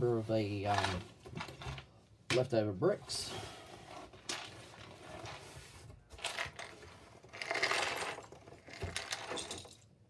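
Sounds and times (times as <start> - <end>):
plastic bricks rattling and clicking: 6.2 - 9.9.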